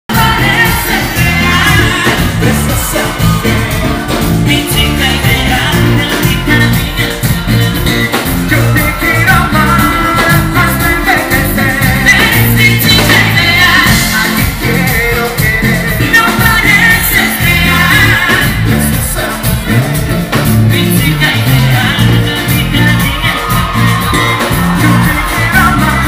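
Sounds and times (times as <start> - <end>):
live latin pop band: 0.1 - 26.0
singers on microphones: 0.1 - 26.0
steady bass beat: 0.1 - 26.0.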